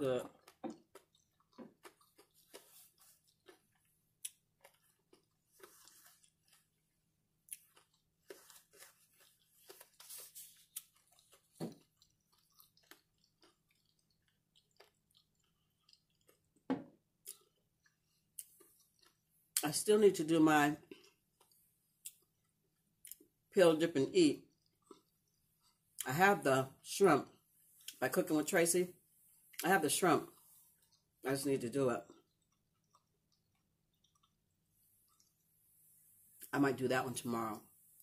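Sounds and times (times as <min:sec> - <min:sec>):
chewing and mouth clicks: 0:00.2 - 0:19.6, 0:20.8 - 0:23.4, 0:24.4 - 0:26.0, 0:30.3 - 0:31.2, 0:32.0 - 0:35.5.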